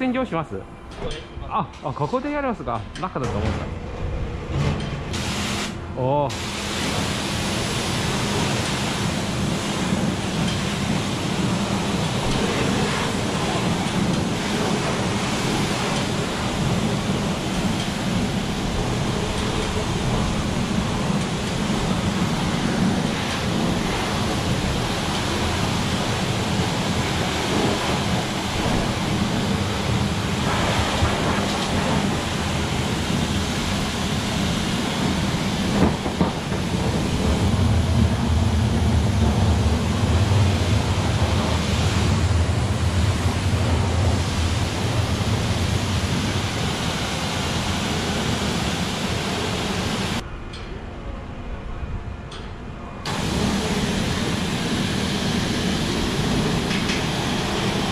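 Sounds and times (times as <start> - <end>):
pressure washer water spray: 5.1 - 38.7, 53.1 - 57.9.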